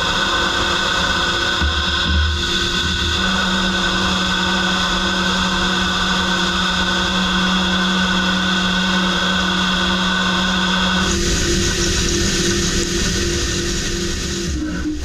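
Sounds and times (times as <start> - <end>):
lathe cutting steady tone: 0.0 - 15.0
coolant spraying: 11.0 - 14.6.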